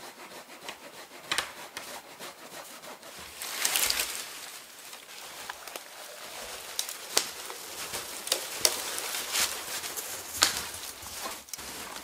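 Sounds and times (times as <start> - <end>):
footsteps crunching in snow: 3.1 - 12.0
twigs snapping: 3.3 - 12.0.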